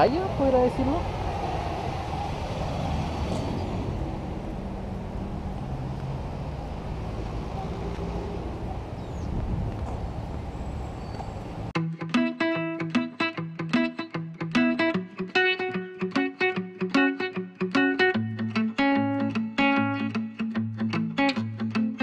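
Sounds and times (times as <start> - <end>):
street traffic rumble: 0.0 - 11.8
guitar music: 11.8 - 22.0.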